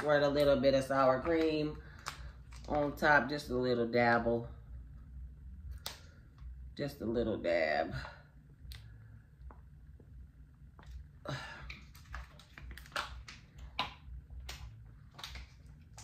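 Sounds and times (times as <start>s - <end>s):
squeeze pouch clicks and crinkles: 11.8s - 16.0s.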